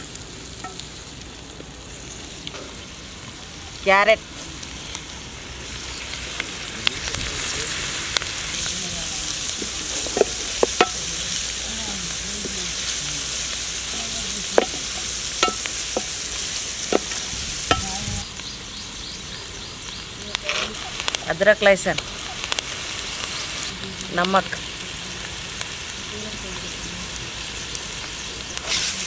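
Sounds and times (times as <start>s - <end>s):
vegetables sizzling in oil: 0.0s - 29.0s
wooden spatula scraping a pan: 9.6s - 11.0s.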